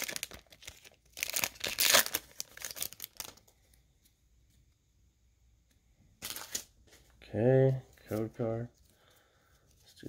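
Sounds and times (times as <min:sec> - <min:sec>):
foil wrapper crinkling and tearing: 0:00.0 - 0:03.5.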